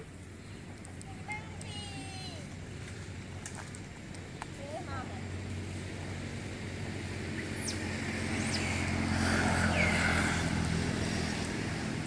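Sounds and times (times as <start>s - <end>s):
vehicle engine approaching: 2.4s - 12.0s.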